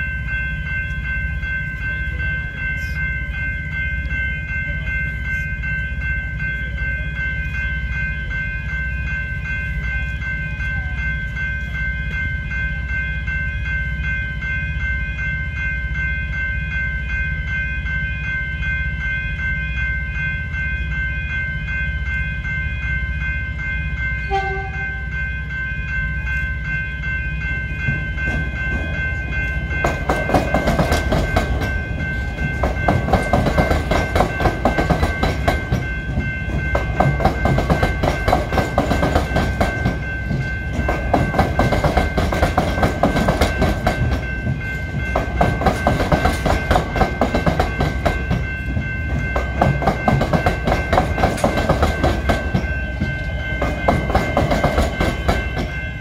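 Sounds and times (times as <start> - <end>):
approaching train: 0.0 - 56.0
level crossing warning bells: 0.0 - 56.0
train horn note: 24.3 - 25.0.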